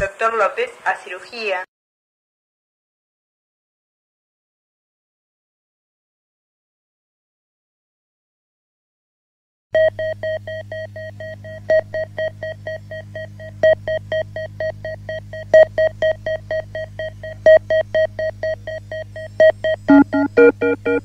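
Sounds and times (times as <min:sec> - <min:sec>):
rapid synthesizer beeps: 0:09.8 - 0:21.0
steady low drone: 0:09.8 - 0:21.0.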